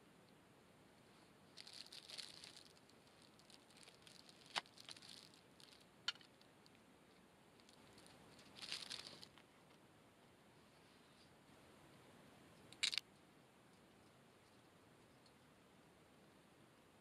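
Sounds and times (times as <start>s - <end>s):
plastic wrapping rustling: 1.5s - 6.4s, 7.6s - 9.4s.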